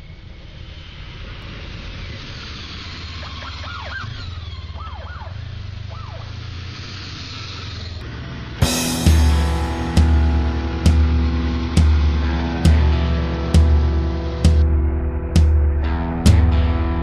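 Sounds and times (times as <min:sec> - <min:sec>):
heavy truck engine rumble: 0:00.0 - 0:17.0
siren whoops: 0:03.1 - 0:06.4
loud music: 0:08.6 - 0:17.0.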